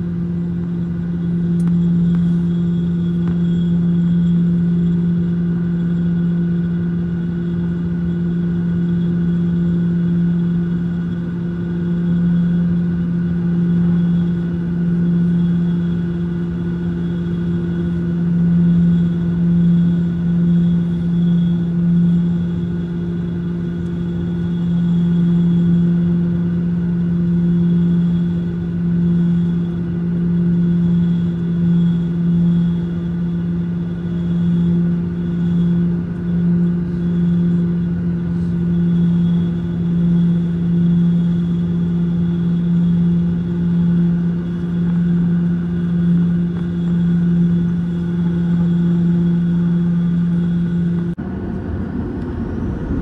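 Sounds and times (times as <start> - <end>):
aircraft cabin hum: 0.0 - 53.0
low rumble: 17.0 - 53.0.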